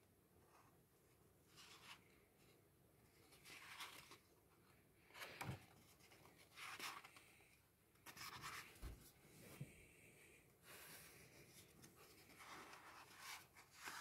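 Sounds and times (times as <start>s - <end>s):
book pages turning: 3.2s - 4.3s, 11.4s - 14.0s.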